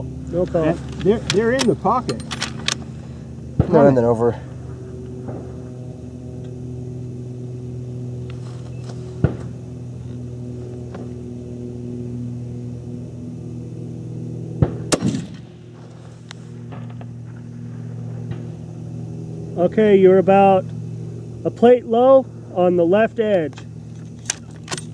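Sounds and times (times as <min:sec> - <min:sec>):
steady low hum: 0:00.0 - 0:24.9
rifle firing: 0:14.6 - 0:15.6.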